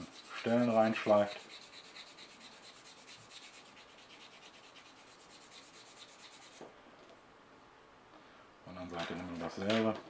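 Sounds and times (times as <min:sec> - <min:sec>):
sanding stick scratching plastic: 0:00.0 - 0:06.6.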